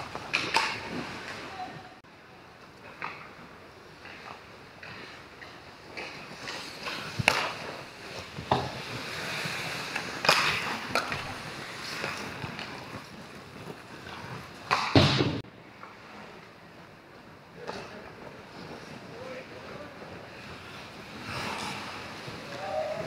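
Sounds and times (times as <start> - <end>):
hockey sticks and puck clacking: 0.0 - 1.5, 2.6 - 16.0, 17.6 - 23.0
loud skate scrape: 0.0 - 1.7, 2.9 - 16.6, 17.6 - 23.0
skate blades scraping ice: 0.0 - 1.8, 2.6 - 23.0.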